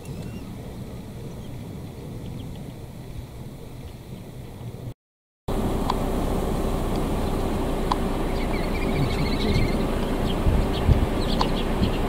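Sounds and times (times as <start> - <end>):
outdoor rumble and hiss: 0.0 - 12.0
faint steady hum: 5.5 - 12.0
bird chicks peeping: 6.9 - 12.0.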